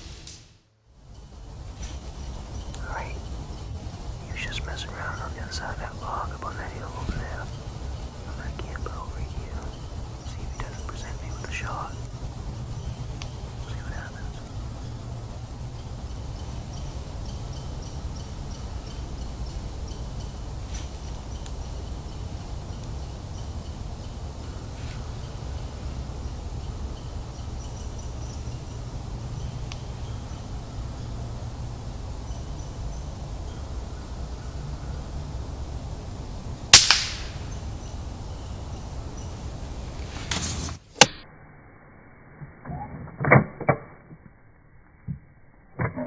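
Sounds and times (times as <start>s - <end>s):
low background rumble: 0.0s - 40.9s
suppressed air rifle shot: 36.8s - 37.6s.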